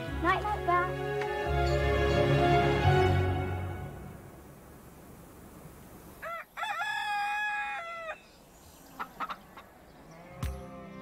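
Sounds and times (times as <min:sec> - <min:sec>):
rooster crowing: 0:06.2 - 0:08.3.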